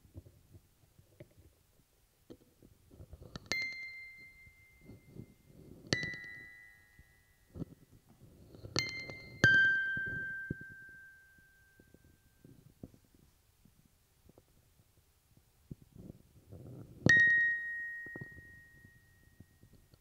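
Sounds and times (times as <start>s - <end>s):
bell-like chime tones ringing: 3.6s - 7.6s, 8.8s - 12.4s, 17.1s - 19.7s.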